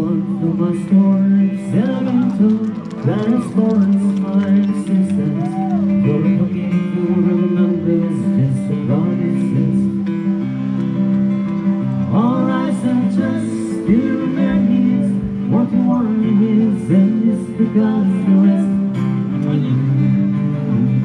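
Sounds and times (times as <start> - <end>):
person singing: 0.0 - 10.1, 12.1 - 21.0
acoustic guitar: 0.0 - 21.0.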